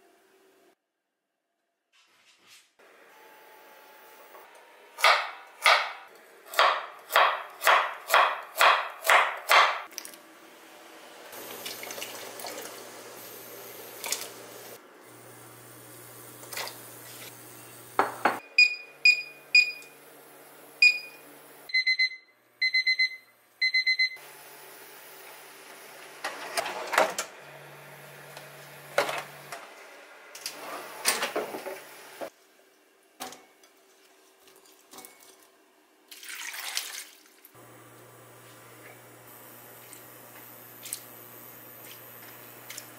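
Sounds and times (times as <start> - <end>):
knife chopping on wooden board: 5.0 - 9.8
kitchenware clattering: 18.0 - 18.4
kitchen timer beeping: 18.4 - 20.0, 20.8 - 24.2.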